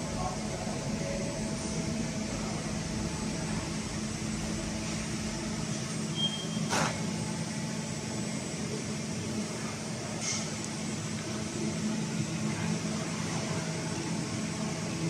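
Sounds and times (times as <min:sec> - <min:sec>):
cooling fans: 0:00.0 - 0:15.0
machinery hum: 0:00.0 - 0:15.0
brief high beep: 0:06.2 - 0:06.7.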